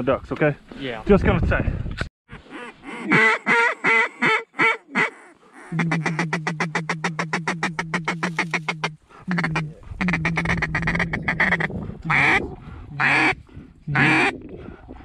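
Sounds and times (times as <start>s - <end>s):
duck call quacks: 2.4s - 12.4s, 13.0s - 14.3s.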